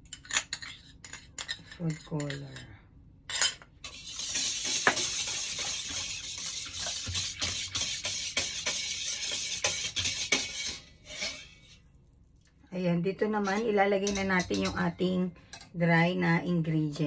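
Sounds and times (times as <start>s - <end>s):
whisk beating liquid in bowl: 3.8s - 11.6s.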